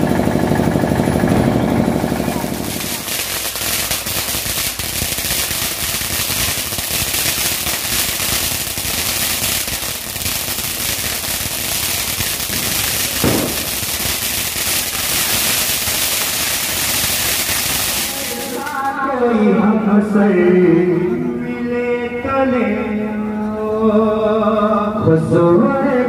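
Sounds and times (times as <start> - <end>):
firecrackers popping and crackling: 0.0 - 19.2.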